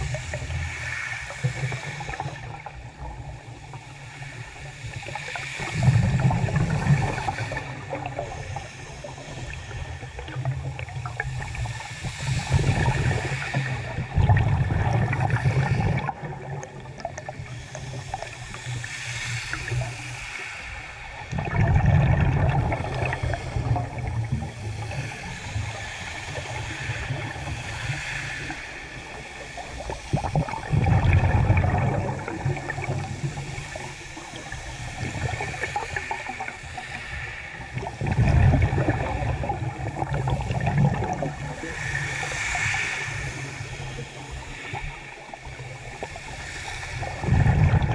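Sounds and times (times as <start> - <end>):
underwater regulator bubbling exhale: 5.6 - 18.7, 21.2 - 28.6, 29.8 - 37.1, 37.7 - 45.0, 46.8 - 47.9.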